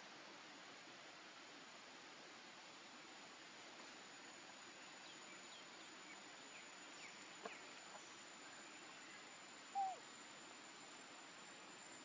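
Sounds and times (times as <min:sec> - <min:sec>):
outdoor background hiss: 0:00.0 - 0:12.0
thin steady high tone: 0:00.7 - 0:12.0
faint short chirps: 0:09.7 - 0:10.0.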